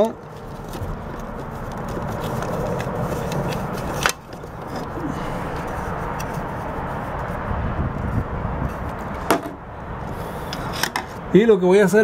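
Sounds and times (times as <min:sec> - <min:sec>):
plastic cover scraping and rustling: 0:00.0 - 0:05.0.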